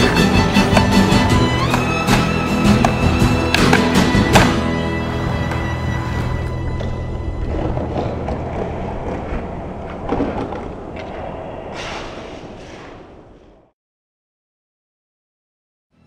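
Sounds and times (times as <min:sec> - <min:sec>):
rumbling noise: 0:05.0 - 0:13.7.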